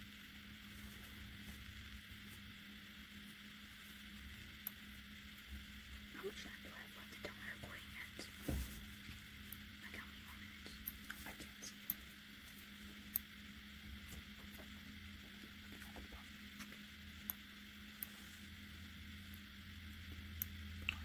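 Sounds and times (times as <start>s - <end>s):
steady low hum: 0.0s - 21.0s
small clicks and scratches: 0.6s - 21.0s
soft bump: 8.4s - 8.8s.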